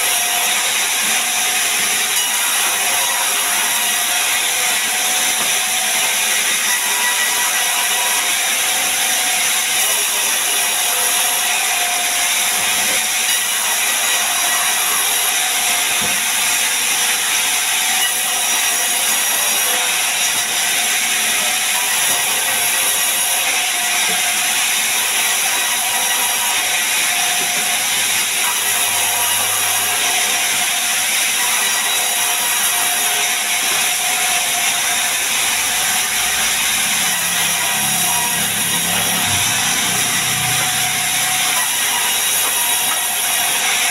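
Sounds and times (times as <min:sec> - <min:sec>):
band saw cutting logs: 0:00.0 - 0:43.9.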